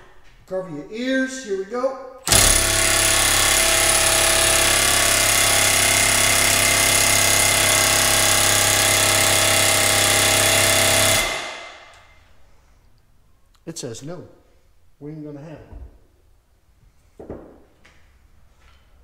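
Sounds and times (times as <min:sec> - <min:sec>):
impact wrench hammering: 0:02.3 - 0:12.2.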